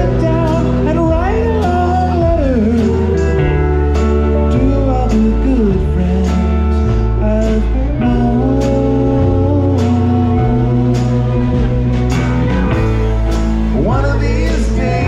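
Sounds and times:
bass: 0.0s - 15.0s
guitar: 0.0s - 15.0s
sliding lead melody: 0.0s - 15.0s
drum beat: 9.2s - 15.0s.

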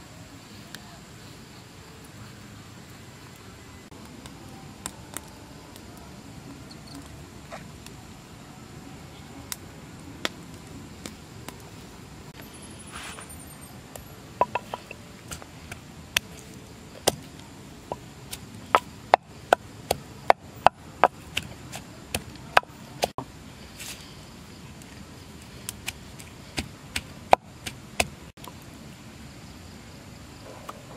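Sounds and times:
wooden pestle pounding in mortar: 14.4s - 15.8s, 17.9s - 23.1s.

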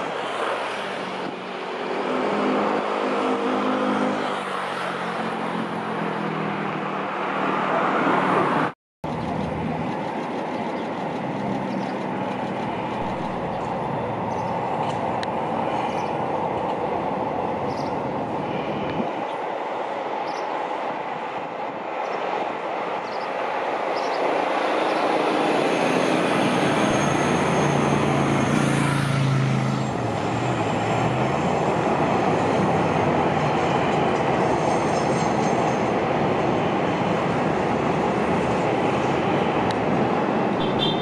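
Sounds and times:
train engine hum: 9.0s - 41.0s
train rumbling: 9.0s - 41.0s.

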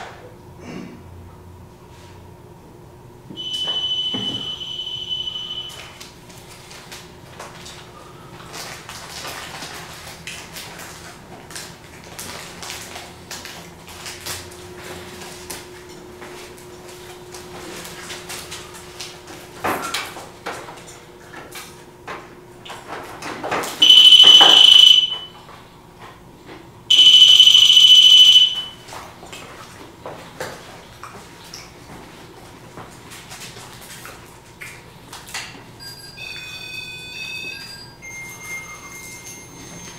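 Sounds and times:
high-pitched alarm beeps: 3.4s - 6.0s, 23.8s - 25.4s, 26.9s - 28.8s, 35.8s - 39.9s.

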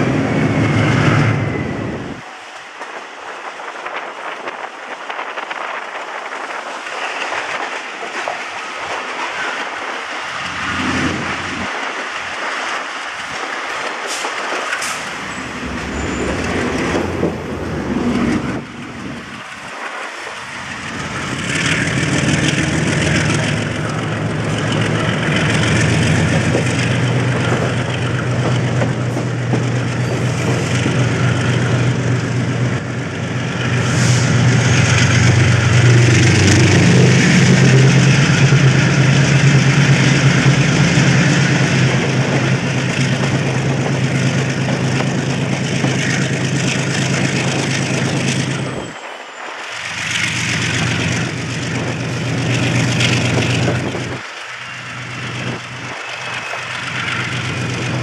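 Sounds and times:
train running noise: 0.0s - 58.0s
diesel engine drone: 14.8s - 58.0s.

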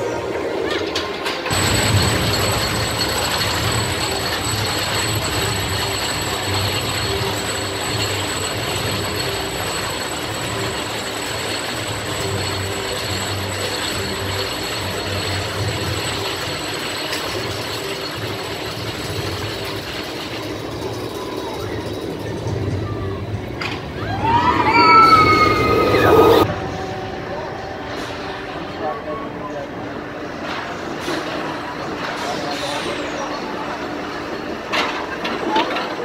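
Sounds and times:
roller coaster chain lift clattering: 0.1s - 26.5s, 30.3s - 36.0s.

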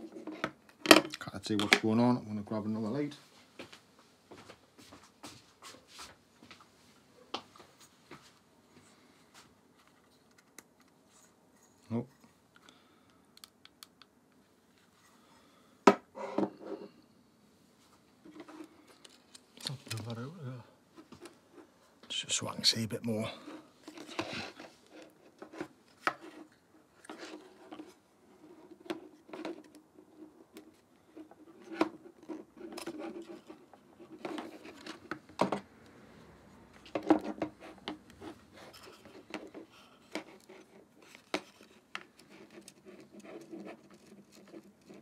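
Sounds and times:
small clicks taps and scratches: 36.8s - 45.0s.

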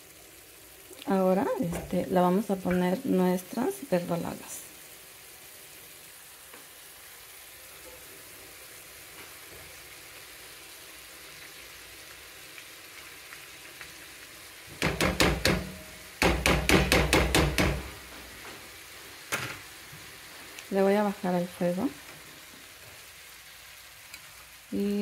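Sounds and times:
salsa sizzling in a frying pan: 0.0s - 25.0s
knocks and clatter against pan: 14.8s - 18.0s.

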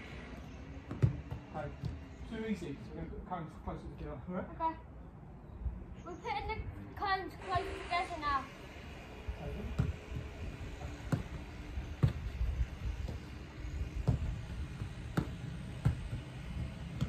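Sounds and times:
football kicked on grass: 0.9s - 2.0s, 11.0s - 11.4s, 12.0s - 12.4s, 14.0s - 17.0s.

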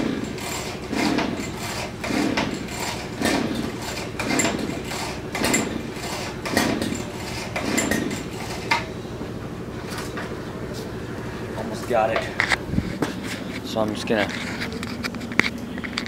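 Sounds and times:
engine pull-start cord yanked: 0.0s - 8.9s
engine cranking: 0.0s - 9.0s, 13.2s - 16.0s.

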